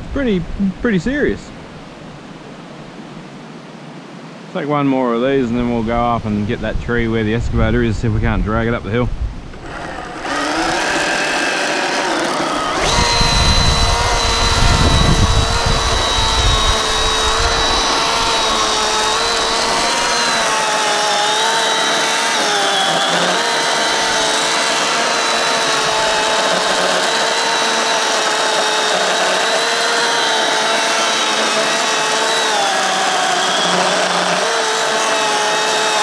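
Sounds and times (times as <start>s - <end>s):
electric chainsaw cutting wood: 9.5s - 36.0s.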